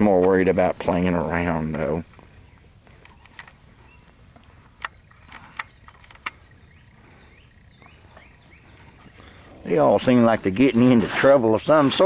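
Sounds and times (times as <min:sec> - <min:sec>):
sharp clicks: 0:02.5 - 0:06.6.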